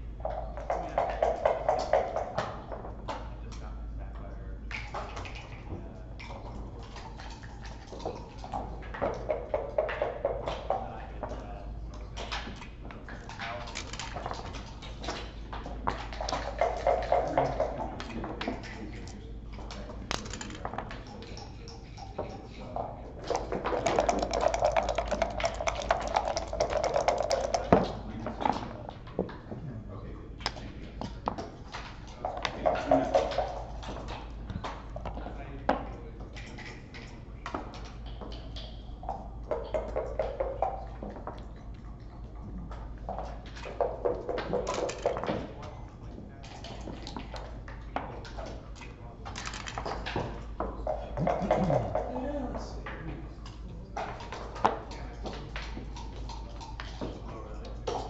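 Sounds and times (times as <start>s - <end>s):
faint murmur of voices: 0.0s - 58.0s
game pieces clacking on board: 20.1s - 20.8s, 23.2s - 27.9s.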